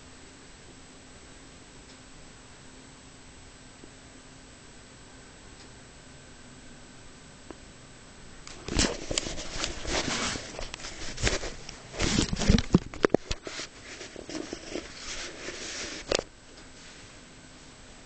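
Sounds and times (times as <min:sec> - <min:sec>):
close rustling and scratching: 0:08.5 - 0:17.2.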